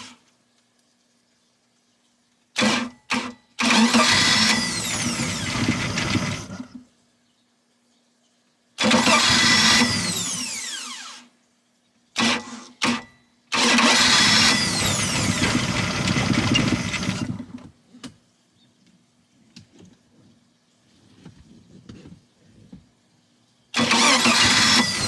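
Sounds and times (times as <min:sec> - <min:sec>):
starter cranking engine: 0:02.6 - 0:06.7, 0:08.8 - 0:10.6, 0:13.6 - 0:17.6, 0:23.8 - 0:25.0.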